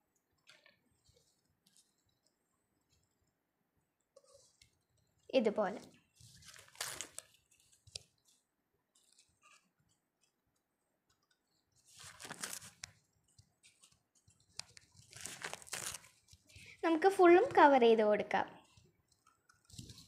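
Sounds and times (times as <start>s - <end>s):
tissue paper rustling and crinkling: 6.1s - 8.4s, 11.8s - 12.8s, 14.8s - 16.6s.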